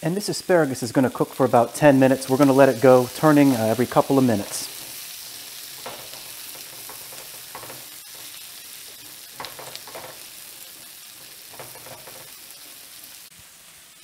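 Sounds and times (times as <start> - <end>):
vegetables sizzling in a pan: 0.0 - 14.0
spatula scraping a pan: 2.1 - 12.8.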